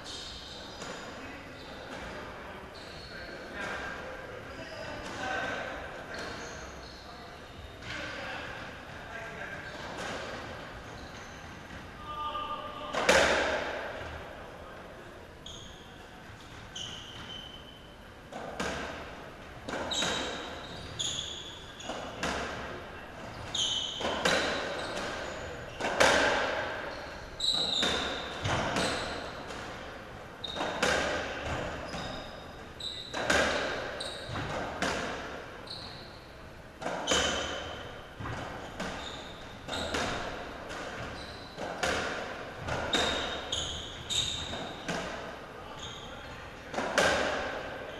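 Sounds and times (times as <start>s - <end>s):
shoe squeaks: 0.0s - 5.5s, 6.1s - 8.1s, 9.6s - 13.2s, 15.4s - 18.8s, 19.7s - 22.6s, 23.2s - 47.9s
ball struck by rackets: 25.8s - 26.6s.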